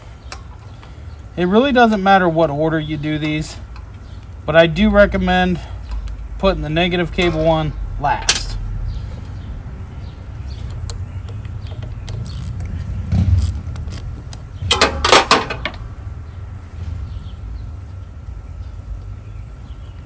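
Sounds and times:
socket wrench clicking: 0:10.7 - 0:12.8, 0:13.4 - 0:14.5.

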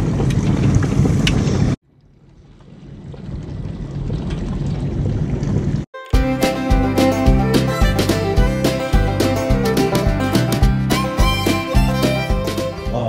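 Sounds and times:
bluegrass guitar and banjo music: 0:06.0 - 0:13.0.

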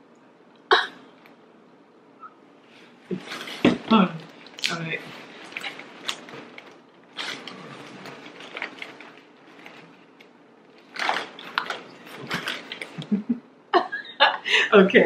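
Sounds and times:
chip bags crinkling: 0:03.2 - 0:13.1.

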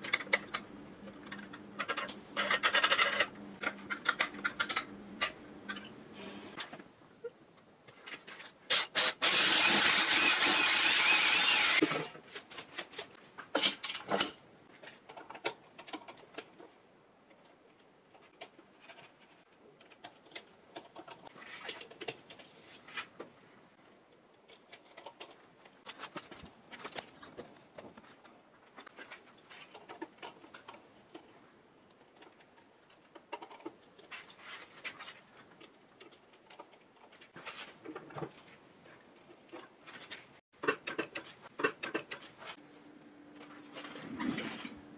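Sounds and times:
metal parts clicking and knocking: 0:00.0 - 0:05.9, 0:11.5 - 0:16.7, 0:39.1 - 0:42.6
cordless drill boring through wood: 0:08.7 - 0:11.8.

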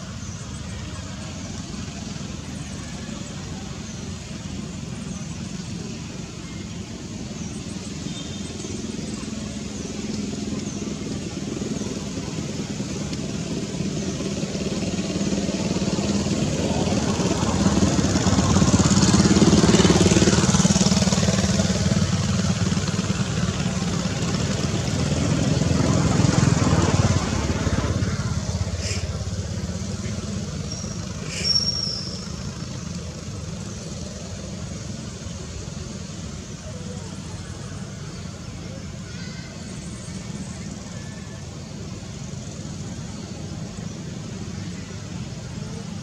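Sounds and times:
passing vehicle engine: 0:07.6 - 0:39.0.

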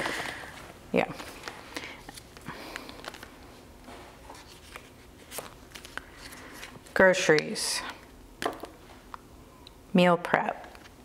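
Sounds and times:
paper rustling: 0:00.0 - 0:06.9.

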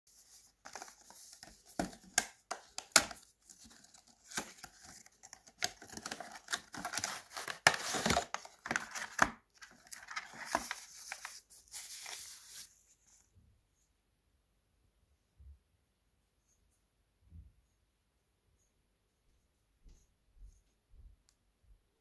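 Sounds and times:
papery rustling and crinkling: 0:00.1 - 0:13.3.

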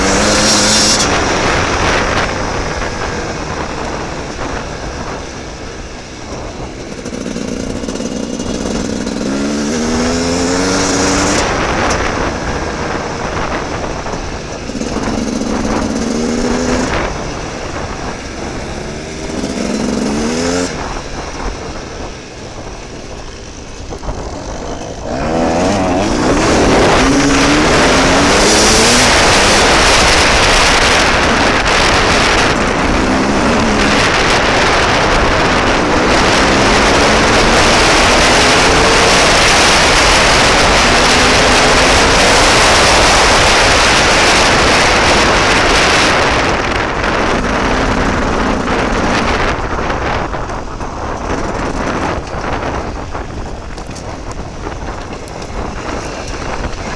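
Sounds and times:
dirt bike engine revving: 0:00.0 - 0:56.9
wind noise on microphone: 0:00.0 - 0:56.9.

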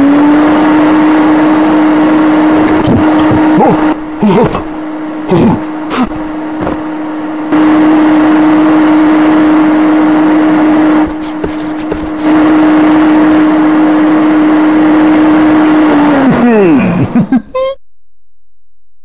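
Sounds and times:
vacuum cleaner running: 0:00.0 - 0:17.3.

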